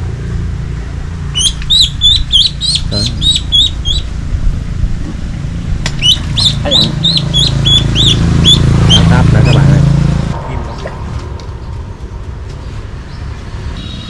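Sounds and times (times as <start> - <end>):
low steady hum: 0.0 - 12.9
bird chirping rapidly: 1.3 - 4.2, 5.9 - 9.9.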